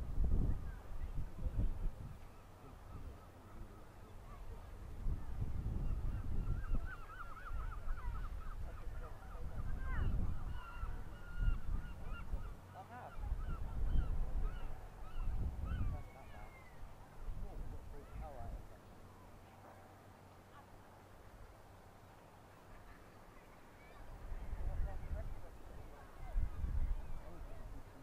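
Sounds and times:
wind rumble on microphone: 0:00.0 - 0:18.8, 0:23.9 - 0:28.0
birds chirping: 0:00.4 - 0:28.0
bird rising cry: 0:05.6 - 0:17.0.

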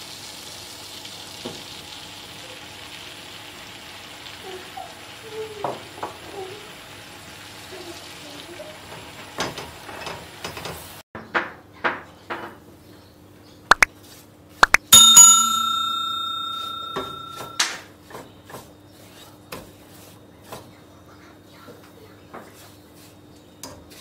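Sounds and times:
sharp clicks sound effect: 0:14.6 - 0:14.9
bell ding: 0:14.8 - 0:17.7.

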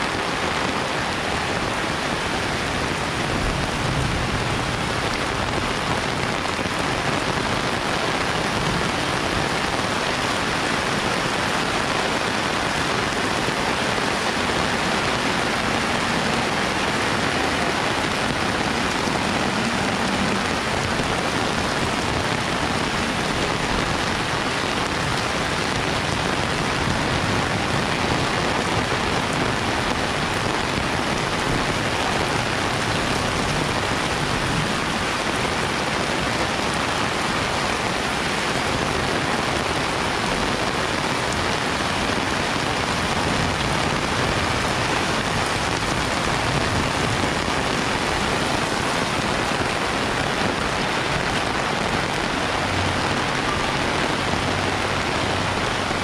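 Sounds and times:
heavy rain pouring: 0:00.0 - 0:56.0.

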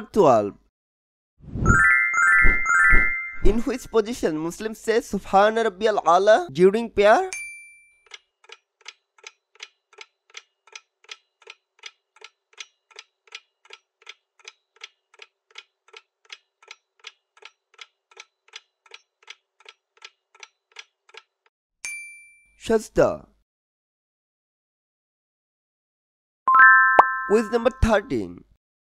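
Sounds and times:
chime: 0:01.7 - 0:03.8, 0:07.3 - 0:08.0, 0:21.8 - 0:22.6, 0:26.5 - 0:27.9
clock-like ticking: 0:08.0 - 0:21.5.

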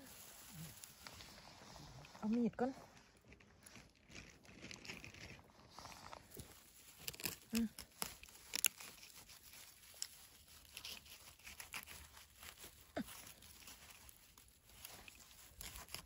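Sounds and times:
dry grass and leaves rustling: 0:00.0 - 0:16.0
knife scraping dry soil: 0:02.9 - 0:16.0.

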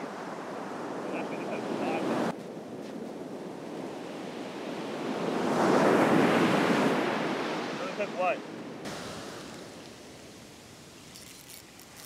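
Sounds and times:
ocean wave breaking on beach: 0:00.0 - 0:02.3, 0:04.1 - 0:10.9.

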